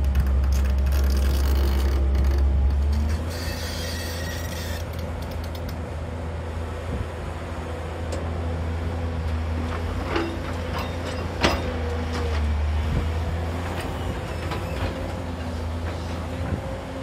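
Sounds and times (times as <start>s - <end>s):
excavator engine running: 0.0s - 17.0s
metal clanks: 10.0s - 12.3s.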